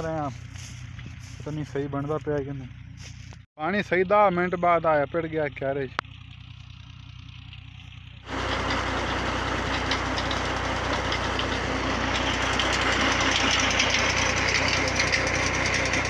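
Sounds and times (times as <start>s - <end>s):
tractor engine running: 0.0s - 16.0s
water gushing from pipe: 8.3s - 16.0s.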